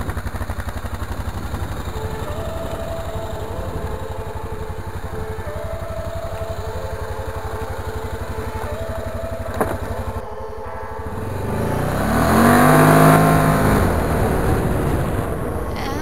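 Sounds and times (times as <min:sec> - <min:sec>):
quad engine idling and revving: 0:00.0 - 0:16.0.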